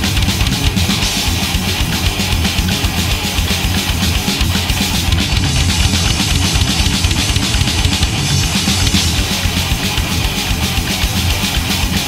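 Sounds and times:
thrash metal music: 0.0s - 12.0s
bass drum hits: 4.0s - 10.3s.

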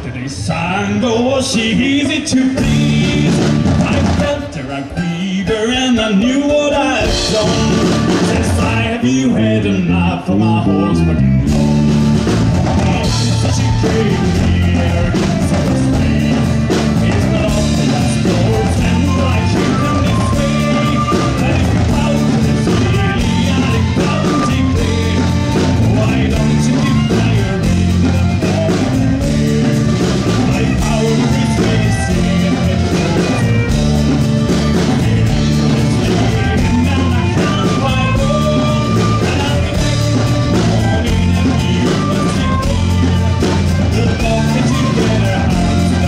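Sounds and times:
flute: 2.2s - 46.0s
fiddle: 10.5s - 46.0s
steady beat: 11.4s - 46.0s.

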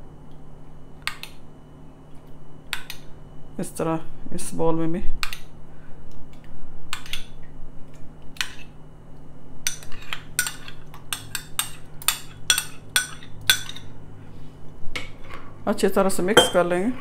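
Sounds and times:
metal spoon clinking on glass bowl: 16.4s - 16.7s.

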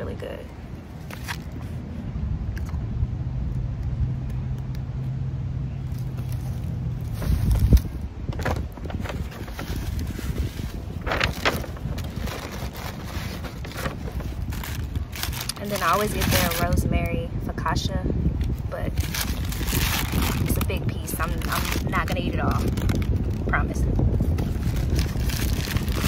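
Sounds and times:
low steady rumble: 0.0s - 26.0s
paper bag crinkling and rustling: 1.0s - 1.8s, 5.9s - 16.8s, 18.8s - 26.0s.

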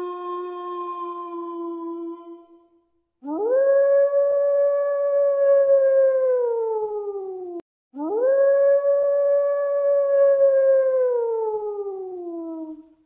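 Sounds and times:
dog howling: 0.0s - 6.3s.

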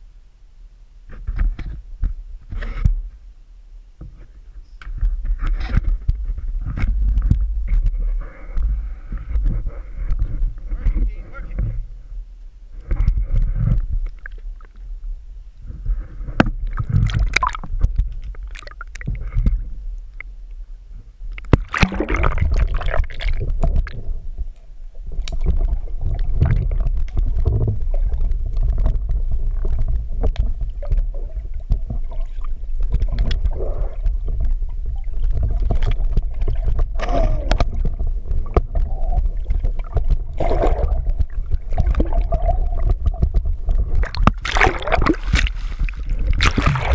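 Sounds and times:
low muffled rumble: 0.0s - 46.9s
underwater wash: 4.0s - 46.9s
water sloshing and gurgling: 5.0s - 46.9s.

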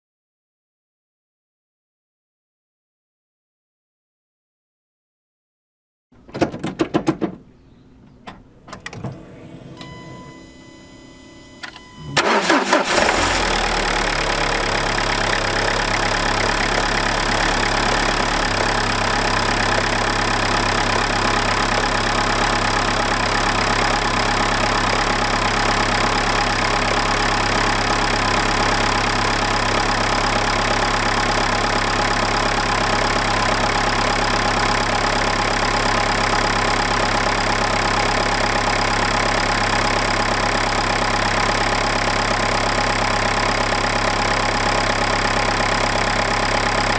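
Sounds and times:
diesel engine idling: 9.4s - 46.9s.

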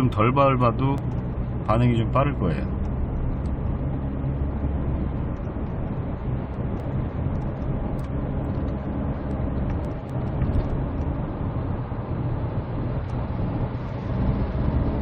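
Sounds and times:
diesel engine hum: 0.0s - 15.0s
tyre and road noise: 0.0s - 15.0s.

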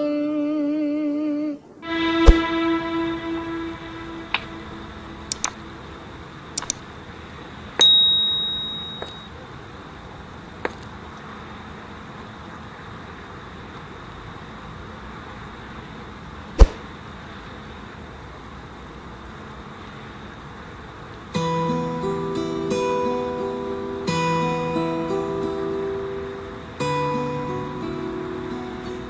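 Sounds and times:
faint steady hiss: 0.0s - 29.0s
mouse clicks: 5.3s - 5.6s, 6.6s - 6.8s
notification bell ding: 7.8s - 9.3s.

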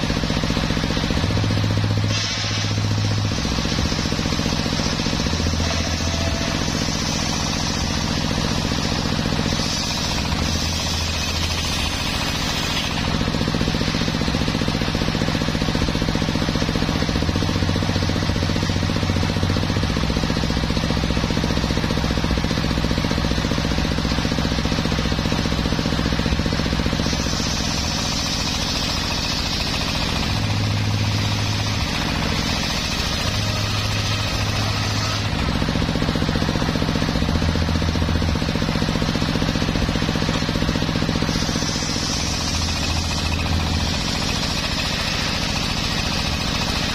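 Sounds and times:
drive motor drone: 0.0s - 46.9s
saw blade ripping through logs: 40.7s - 46.9s.

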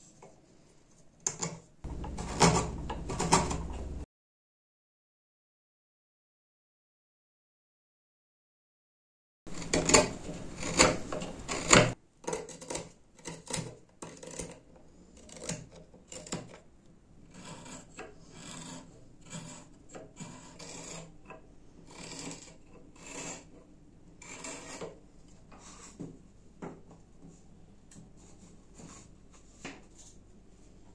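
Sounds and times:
wood being scraped by hand: 9.5s - 16.5s, 17.3s - 21.2s, 21.9s - 23.6s, 24.2s - 26.0s.

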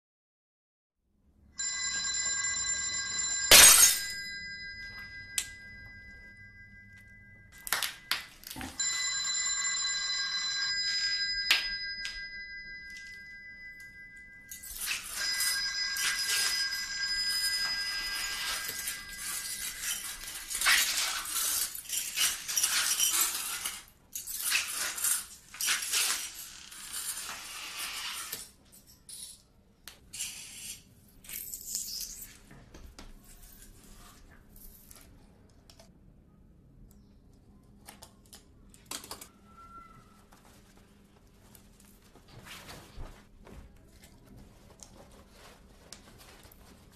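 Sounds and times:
ringing electronic tone: 1.6s - 8.1s.

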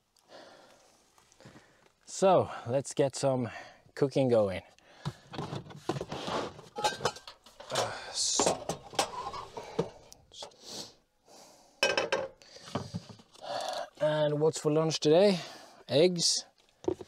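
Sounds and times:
cooking gear clattering: 6.6s - 10.5s.

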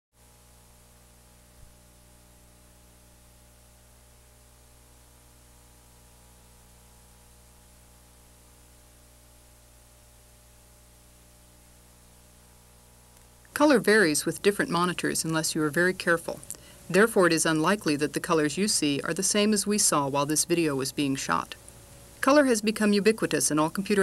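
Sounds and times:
mains hum: 0.2s - 24.0s
steady hiss: 21.2s - 24.0s.

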